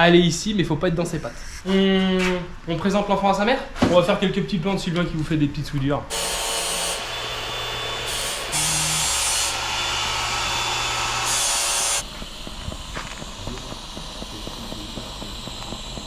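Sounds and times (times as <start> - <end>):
faint workshop sounds: 0.0 - 16.0
arc welding hiss and buzz: 6.1 - 16.0.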